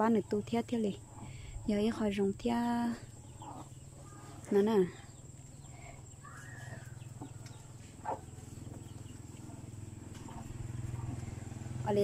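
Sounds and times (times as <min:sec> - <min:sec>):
steady low hum: 0:00.0 - 0:12.0
faint chicken calls: 0:03.1 - 0:11.8.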